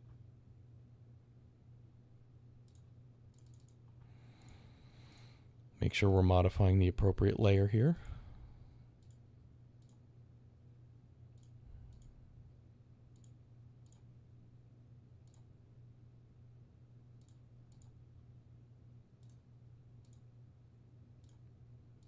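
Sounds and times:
low steady hum: 0.0s - 22.0s
computer mouse clicks: 2.6s - 4.6s, 9.0s - 10.0s, 11.3s - 12.2s, 13.1s - 14.1s, 15.2s - 15.5s, 17.2s - 18.0s, 19.2s - 20.3s, 21.2s - 21.5s.

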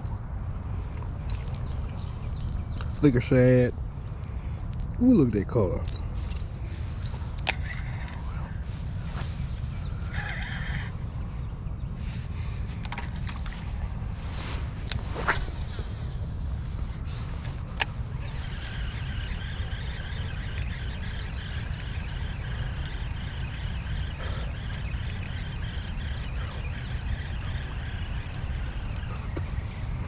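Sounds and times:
fishing reel gears whirring: 6.1s - 8.7s, 9.4s - 11.0s, 14.8s - 30.0s
reel click: 17.5s - 29.1s.

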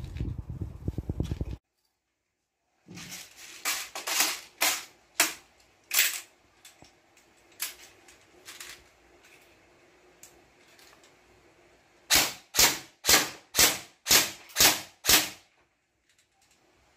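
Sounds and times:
airsoft rifle shots: 12.1s - 15.5s.

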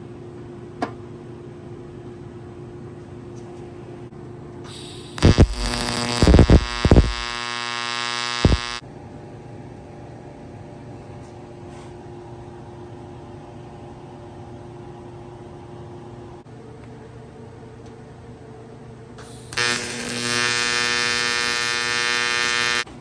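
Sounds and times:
steady low hum: 0.0s - 23.0s
sharp welding cracks: 4.7s - 8.8s, 19.2s - 22.9s
welding arc buzzing: 4.7s - 8.8s, 19.2s - 22.9s.

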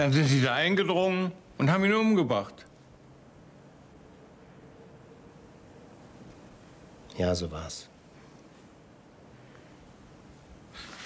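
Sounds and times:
faint steady tone: 2.3s - 10.6s.

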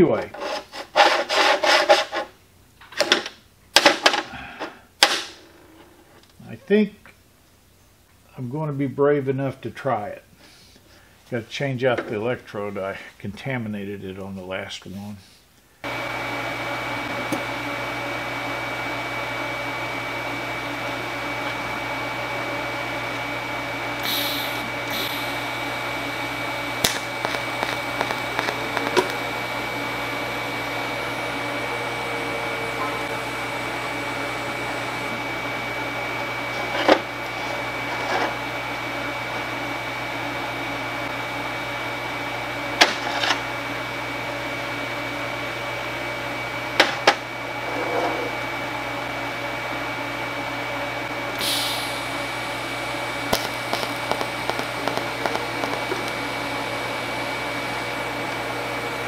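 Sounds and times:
welder humming with high whine: 15.8s - 59.0s
welding arc ticks: 26.8s - 29.2s, 53.2s - 56.3s.

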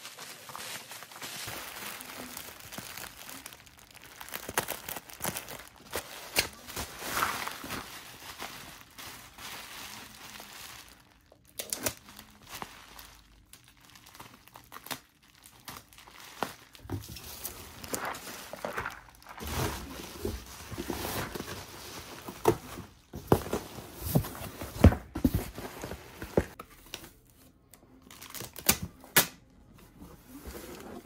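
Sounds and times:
bubble wrap crinkling: 0.0s - 26.6s.

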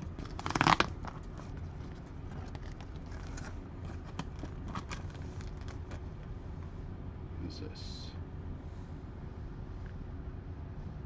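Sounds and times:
cards clicking and rustling: 0.0s - 6.3s
steady low hum: 0.0s - 11.0s.

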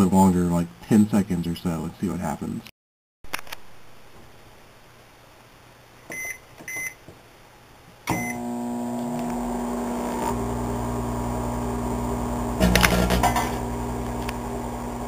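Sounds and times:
microwave keypad beeps: 6.1s - 7.0s, 8.1s - 8.4s
microwave oven humming: 8.1s - 15.0s
electrical crackling burst: 11.8s - 15.0s.

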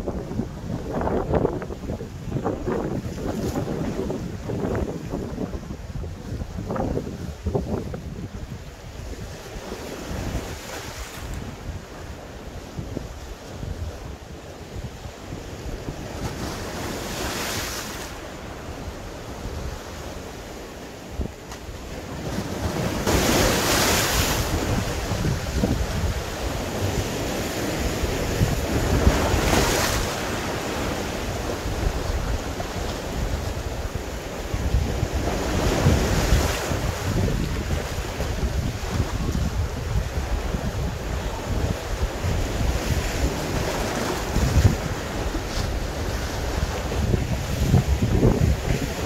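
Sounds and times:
wind buffeting microphone: 0.0s - 12.0s, 21.2s - 49.0s
waves breaking against rocks: 15.5s - 20.6s, 21.5s - 49.0s.

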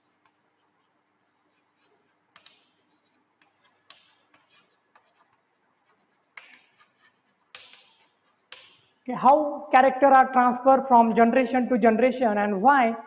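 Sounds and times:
chalk writing on blackboard: 0.0s - 9.0s.

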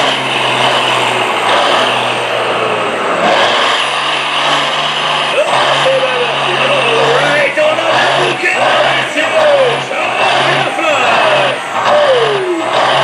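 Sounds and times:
diesel truck engine at full throttle: 0.0s - 13.0s.

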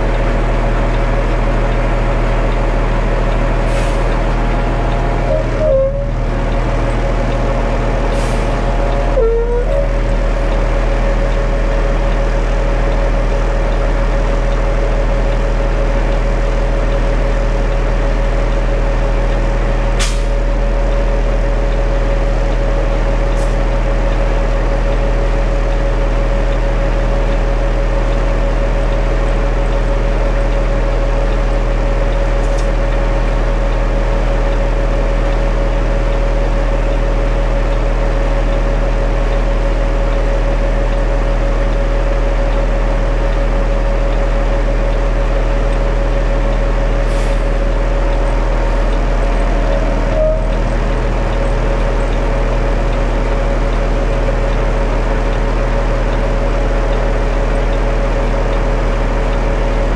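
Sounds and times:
concrete mixer truck engine: 0.0s - 59.9s
constant whine: 0.0s - 59.9s.

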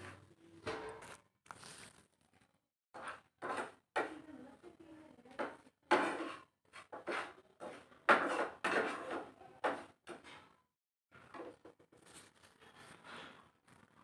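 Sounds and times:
spoon scraping in a pan: 3.0s - 4.3s, 5.3s - 10.6s.

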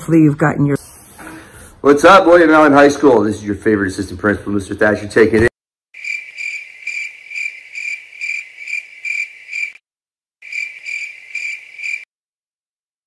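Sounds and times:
cricket chirping: 6.0s - 9.8s, 10.4s - 12.1s.

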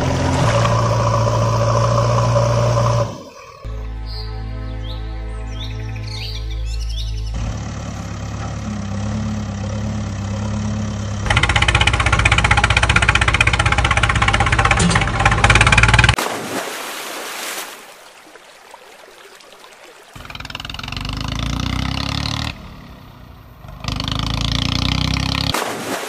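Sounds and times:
engine running with fast knocking: 7.4s - 16.2s, 20.2s - 22.6s
splashing water: 12.9s - 23.1s, 23.8s - 26.0s.

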